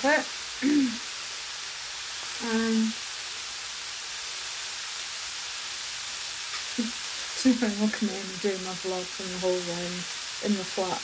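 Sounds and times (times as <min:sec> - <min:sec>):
food sizzling in a pan: 0:00.0 - 0:11.0
woman humming mm: 0:00.6 - 0:01.0, 0:06.8 - 0:07.0.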